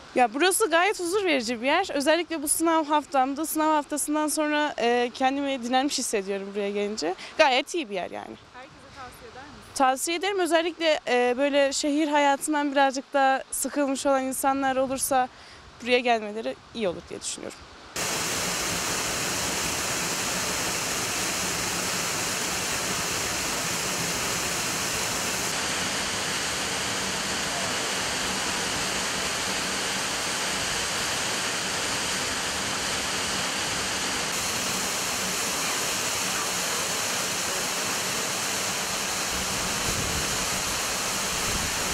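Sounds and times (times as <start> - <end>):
waterfall rushing: 18.0 - 41.9.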